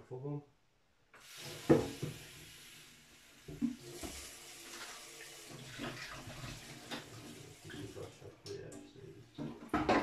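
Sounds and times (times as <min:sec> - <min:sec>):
plastic bottle being rinsed: 0:01.2 - 0:08.8
tap water running into sink: 0:01.2 - 0:10.0.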